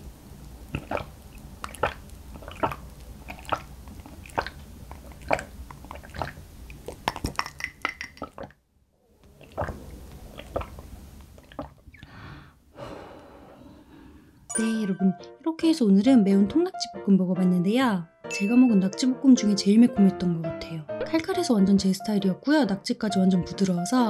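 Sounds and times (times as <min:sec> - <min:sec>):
person gulping swallows: 0:00.7 - 0:08.6, 0:09.2 - 0:12.1.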